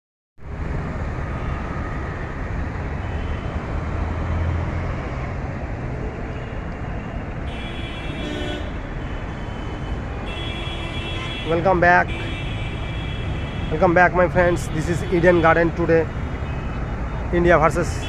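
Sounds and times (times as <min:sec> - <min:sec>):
road traffic rumble: 0:00.4 - 0:18.0.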